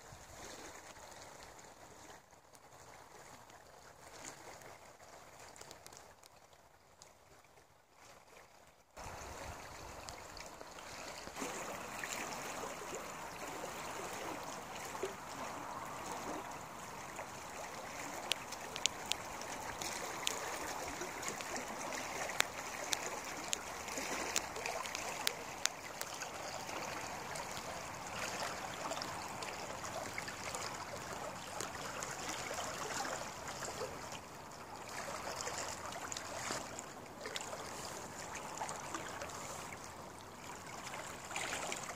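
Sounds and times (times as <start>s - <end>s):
fast-flowing river rushing: 9.0s - 34.1s.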